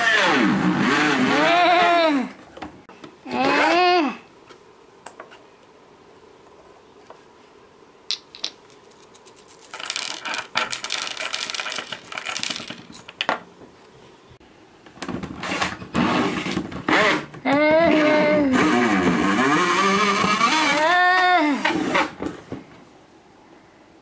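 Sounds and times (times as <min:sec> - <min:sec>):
metallic clinking and rattling: 0:08.1 - 0:13.3
small objects clicking on tabletop: 0:08.1 - 0:13.3.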